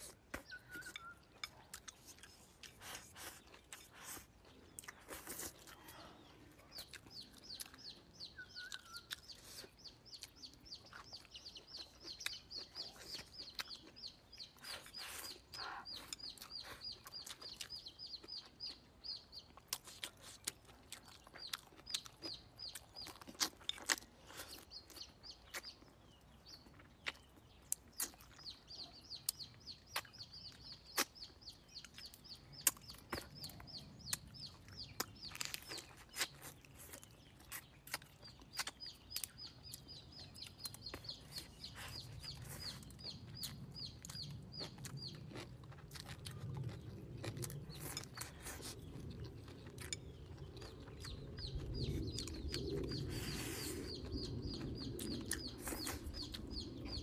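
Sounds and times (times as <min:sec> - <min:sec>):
person chewing: 0:00.0 - 0:57.0.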